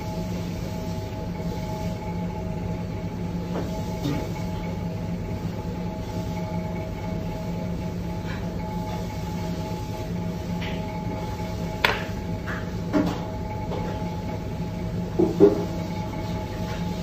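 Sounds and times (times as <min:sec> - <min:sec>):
machine hum: 0:00.0 - 0:17.0.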